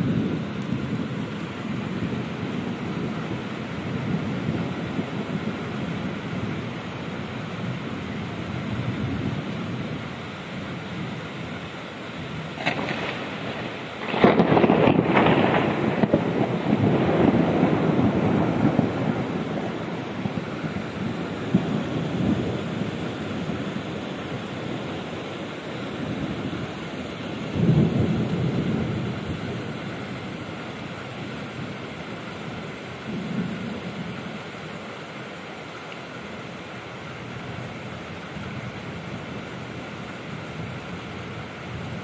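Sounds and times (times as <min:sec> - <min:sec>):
rain hissing: 0:00.0 - 0:42.0
thunder rumbling: 0:12.2 - 0:34.4.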